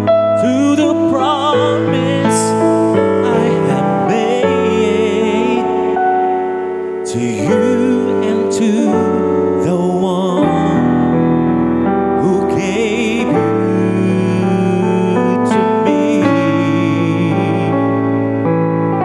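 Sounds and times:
man singing a slow ballad: 0:00.0 - 0:18.3
piano accompaniment: 0:00.0 - 0:19.0.

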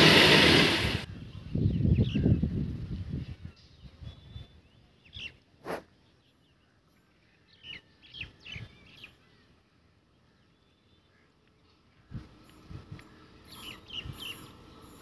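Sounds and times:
faint outdoor background noise: 0:00.0 - 0:15.0
small birds chirping: 0:01.1 - 0:15.0.

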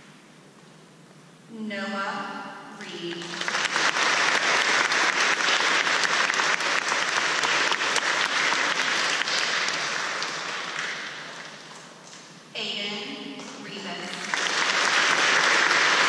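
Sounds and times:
audience applauding: 0:03.2 - 0:11.8, 0:14.1 - 0:16.0.

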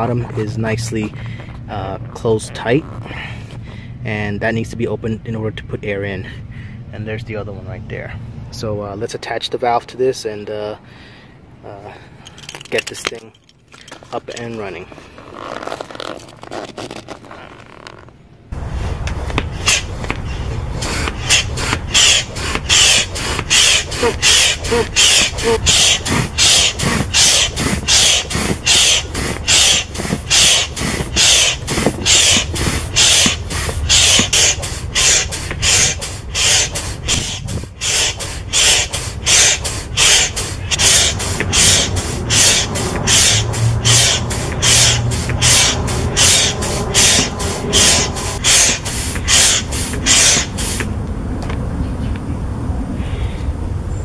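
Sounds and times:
hand pump rushing air: 0:12.2 - 0:18.1, 0:19.6 - 0:50.9.

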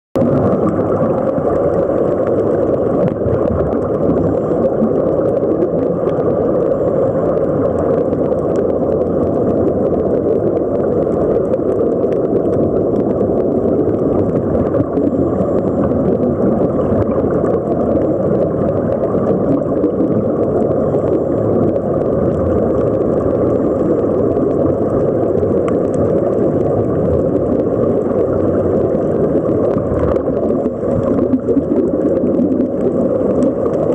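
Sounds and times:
underwater rumbling wash: 0:00.2 - 0:33.9.

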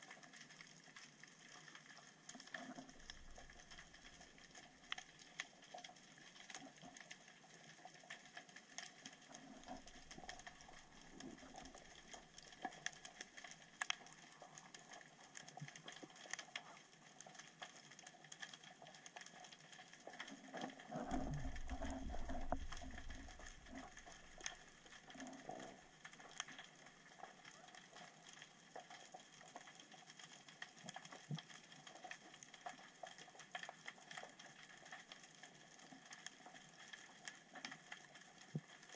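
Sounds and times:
sharp clicks and crackles: 0:00.0 - 0:38.9
low rumble: 0:21.1 - 0:24.4.

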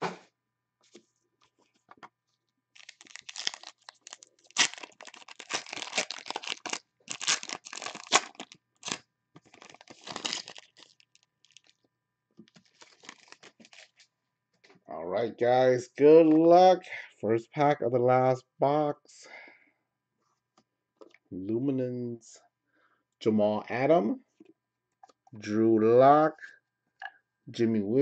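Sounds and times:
foil packs tearing and crinkling: 0:02.8 - 0:11.8, 0:12.5 - 0:14.0.

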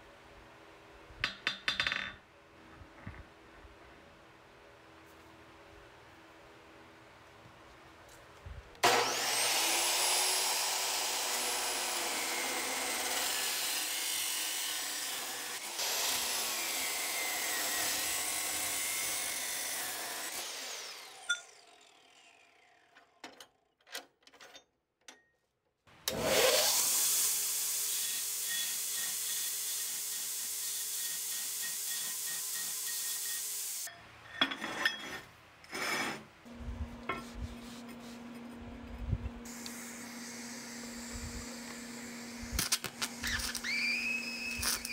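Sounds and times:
belt grinder grinding steel: 0:08.8 - 0:23.0, 0:26.1 - 0:33.9, 0:39.5 - 0:44.9
chop saw cutting steel: 0:08.8 - 0:23.2, 0:26.1 - 0:33.9, 0:39.5 - 0:44.9.

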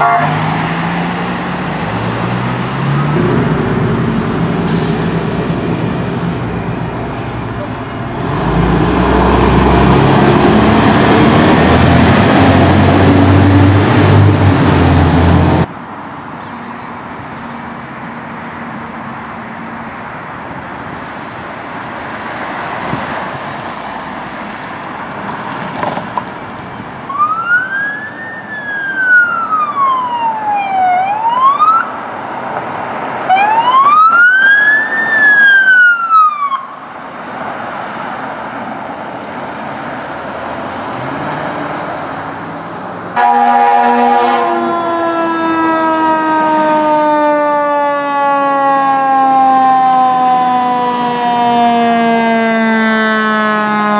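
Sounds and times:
electronic siren wailing: 0:00.0 - 0:00.4, 0:27.1 - 0:31.9, 0:43.2 - 0:53.9
heavy diesel engine: 0:00.0 - 0:15.7
passing traffic: 0:00.0 - 0:53.9.

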